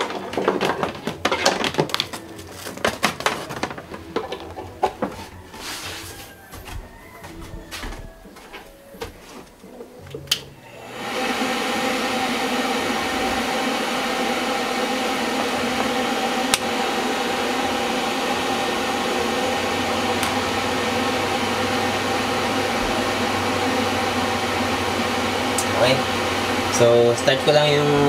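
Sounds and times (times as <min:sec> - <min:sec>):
electric fan humming: 0:08.7 - 0:28.0.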